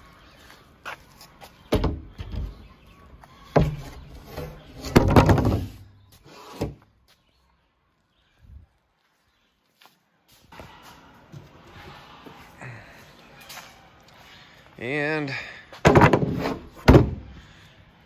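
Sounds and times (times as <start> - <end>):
wooden board knocking and thumping: 4.8 - 5.8, 15.8 - 17.2.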